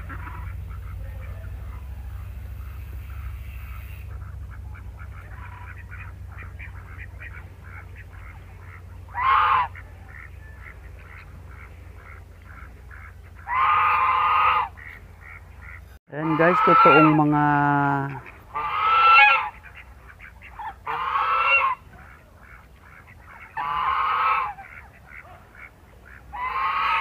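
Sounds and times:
low rumble: 0.0s - 16.0s
goose honking: 0.0s - 27.0s
rapid duck-like calls: 0.0s - 27.0s.

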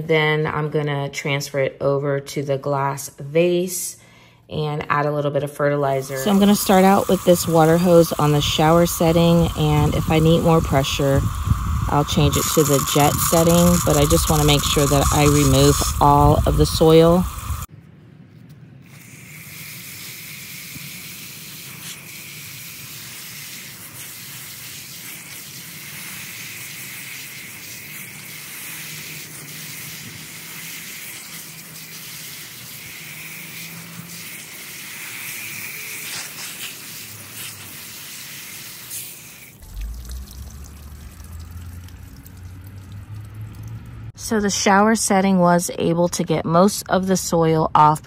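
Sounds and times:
hose spray hissing on plant and glass: 5.9s - 17.7s, 18.9s - 40.0s.

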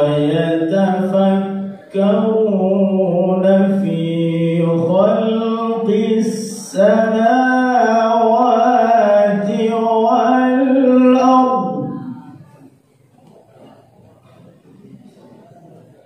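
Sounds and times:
man chanting melodically: 0.0s - 12.4s.

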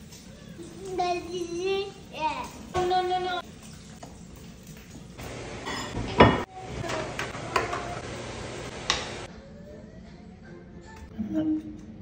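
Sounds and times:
utensils clinking against glass bowl: 3.6s - 7.8s.

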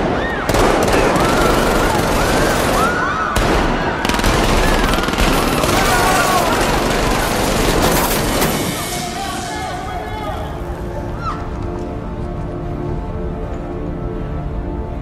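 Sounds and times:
people screaming: 0.0s - 7.2s, 8.8s - 11.6s
rapid automatic gunfire: 0.5s - 8.9s.

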